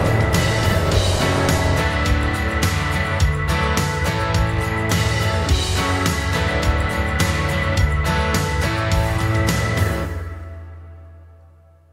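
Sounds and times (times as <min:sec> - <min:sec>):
final chord ringing: 0:00.0 - 0:02.6
drum hit: 0:00.0 - 0:03.2.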